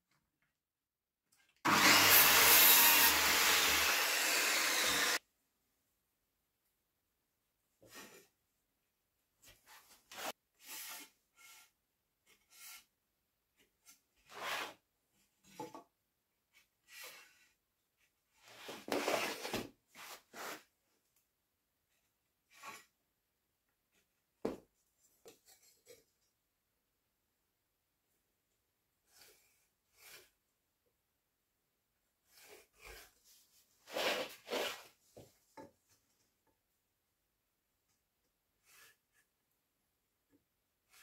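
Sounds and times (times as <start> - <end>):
pencil scratching on wood: 9.7 - 12.9, 29.1 - 30.4, 32.2 - 33.3, 38.6 - 39.2
wood scraping on wooden floor: 18.4 - 20.6, 33.8 - 35.3.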